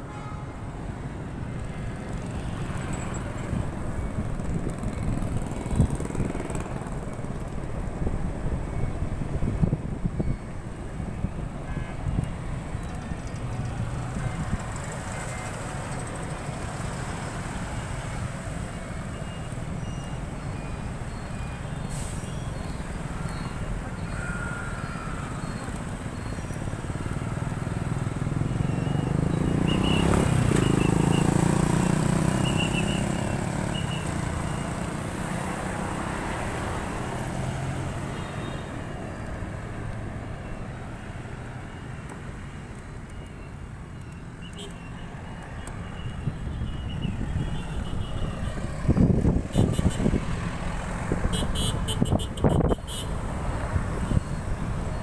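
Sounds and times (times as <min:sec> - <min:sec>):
car and motorbike engines: 0:00.0 - 0:55.0
tyre and road noise: 0:00.0 - 0:55.0
motor scooter passing: 0:02.1 - 0:07.6, 0:27.2 - 0:38.1.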